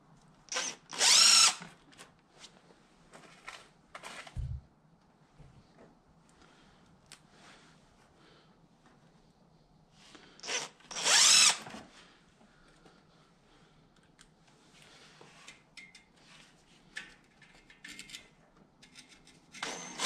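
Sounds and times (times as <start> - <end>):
impact driver running: 10.4 - 11.8, 19.6 - 20.0
small clicks and handling noises: 13.9 - 14.6, 15.4 - 19.6.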